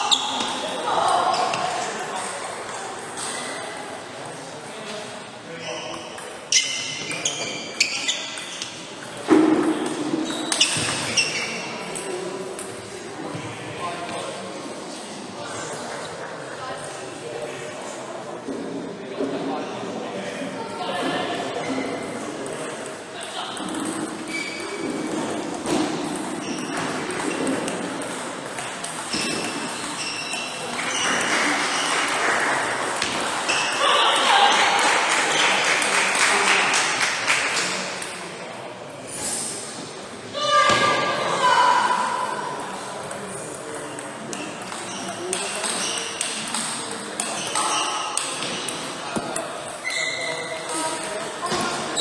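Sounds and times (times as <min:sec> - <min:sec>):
shoe squeaks: 0:00.0 - 0:00.7, 0:05.6 - 0:08.9, 0:10.2 - 0:11.7, 0:24.2 - 0:24.9, 0:26.4 - 0:27.5, 0:29.1 - 0:31.9, 0:33.5 - 0:33.8, 0:44.8 - 0:46.3, 0:47.2 - 0:48.7, 0:49.8 - 0:52.0
murmur of voices: 0:00.0 - 0:52.0.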